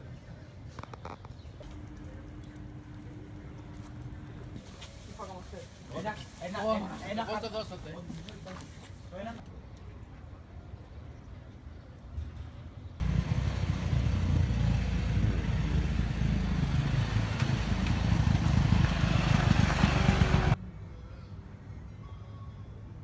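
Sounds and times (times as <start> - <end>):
motor scooter engine running: 13.0 - 20.6.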